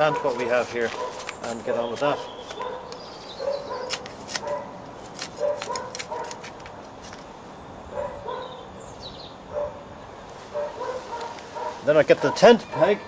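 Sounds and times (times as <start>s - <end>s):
dog barking: 0.0s - 0.4s, 1.0s - 1.8s, 2.6s - 4.8s, 5.4s - 6.3s, 7.9s - 8.6s, 9.5s - 9.9s, 10.5s - 12.9s
trowel scraping soil: 0.0s - 3.1s.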